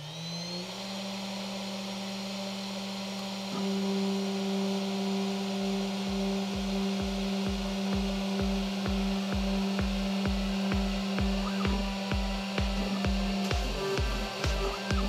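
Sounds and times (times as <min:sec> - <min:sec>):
router spindle humming: 0:00.0 - 0:15.0
music with kick-drum beat: 0:03.5 - 0:15.0.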